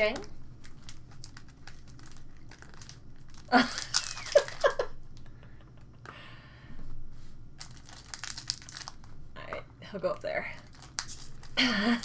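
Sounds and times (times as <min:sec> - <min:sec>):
foil card pack crinkling: 0:00.6 - 0:05.0, 0:07.6 - 0:09.1, 0:10.5 - 0:12.0.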